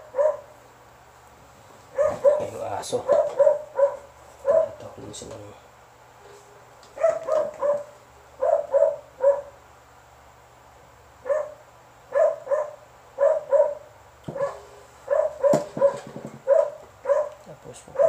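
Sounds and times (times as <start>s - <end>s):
dog barking: 0.0s - 0.5s, 1.9s - 4.8s, 7.0s - 9.6s, 11.2s - 18.0s.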